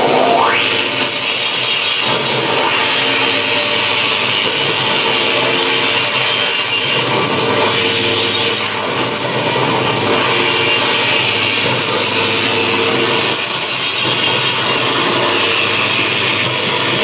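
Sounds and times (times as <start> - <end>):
harsh electronic noise music: 0.0 - 17.0.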